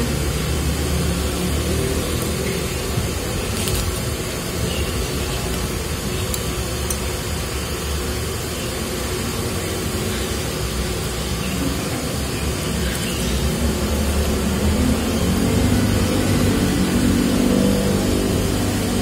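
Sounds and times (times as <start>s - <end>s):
low hum and hiss: 0.0s - 19.0s
crunching of fried food being chewed: 3.5s - 4.1s.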